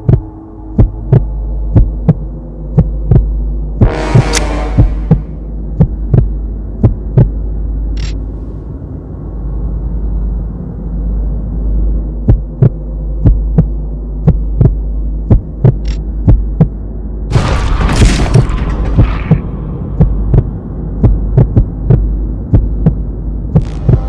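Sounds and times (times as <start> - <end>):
heartbeat thumps: 0.0 - 7.4, 12.2 - 16.8, 19.0 - 24.0
low droning hum: 0.0 - 24.0
rushing noise: 17.3 - 24.0.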